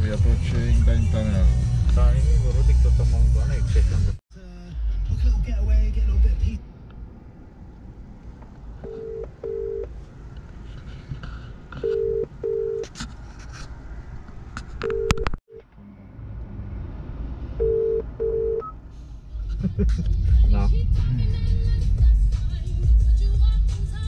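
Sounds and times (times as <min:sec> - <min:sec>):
low steady rumble: 0:00.0 - 0:24.0
telephone ringing tone: 0:08.8 - 0:09.9, 0:11.8 - 0:12.8, 0:14.8 - 0:15.3, 0:17.6 - 0:18.7.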